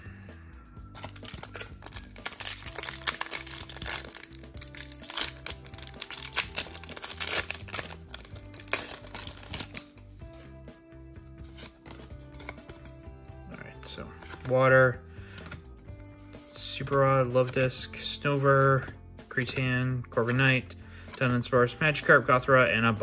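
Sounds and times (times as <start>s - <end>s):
background music with steady beat: 0.0s - 23.0s
foil wrapper crinkling and tearing: 1.0s - 9.9s.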